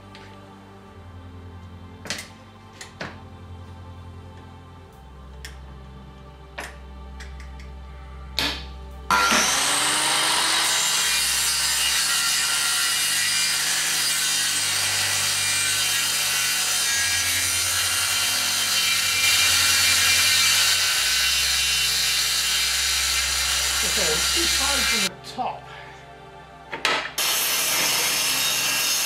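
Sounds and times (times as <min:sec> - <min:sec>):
circular saw cutting wood: 0:09.1 - 0:25.1, 0:27.2 - 0:29.0.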